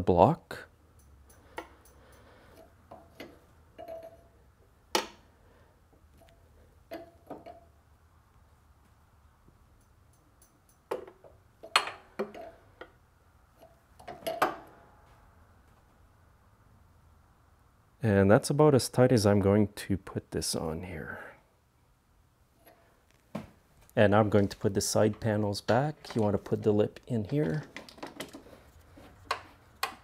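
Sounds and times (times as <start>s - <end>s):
wrench clinking on metal: 0.9s - 4.4s, 9.7s - 12.6s.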